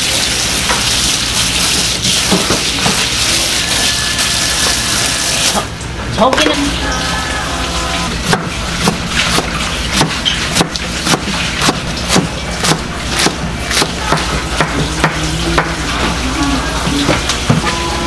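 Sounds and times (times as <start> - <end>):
knife chopping on plastic board: 8.2 - 15.7.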